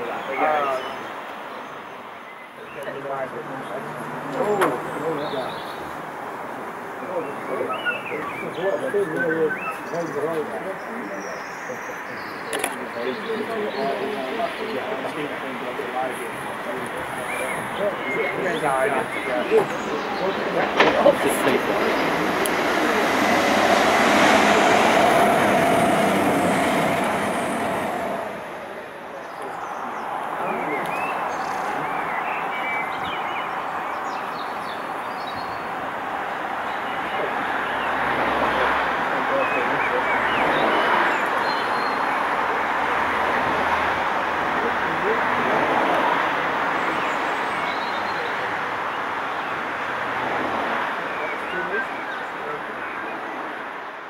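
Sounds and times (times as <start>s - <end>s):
steam locomotive exhaust: 21.4s - 28.9s.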